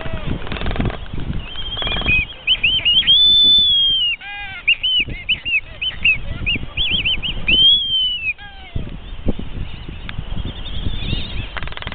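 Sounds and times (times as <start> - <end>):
albatrosses whistling: 0.8 - 8.5, 9.7 - 11.9.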